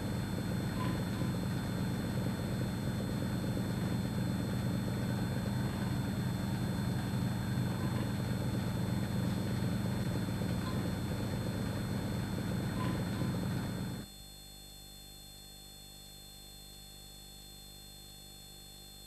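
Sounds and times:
vacuum pump humming: 0:00.0 - 0:14.0.

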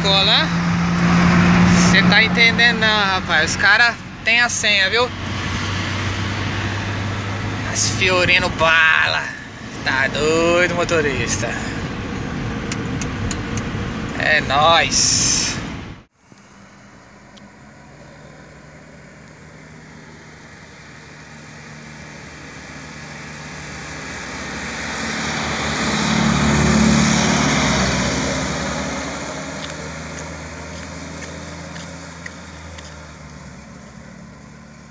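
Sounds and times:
vehicles driving past: 0:00.0 - 0:34.9.

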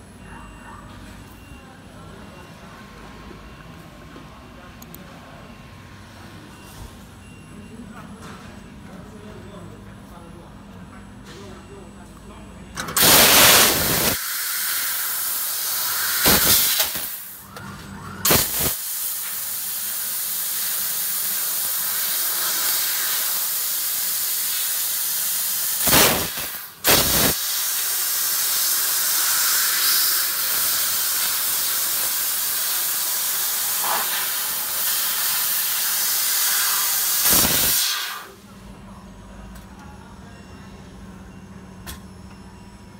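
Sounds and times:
laser cutter gas hiss: 0:13.0 - 0:17.4, 0:18.2 - 0:38.4.

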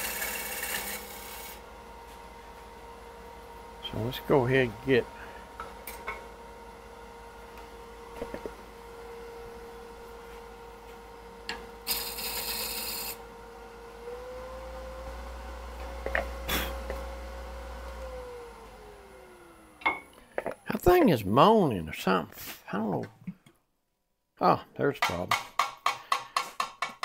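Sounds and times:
turning tool cutting wood: 0:00.0 - 0:01.6, 0:11.8 - 0:13.2
wood lathe motor moaning: 0:00.0 - 0:01.6, 0:11.9 - 0:13.2, 0:14.0 - 0:19.8.

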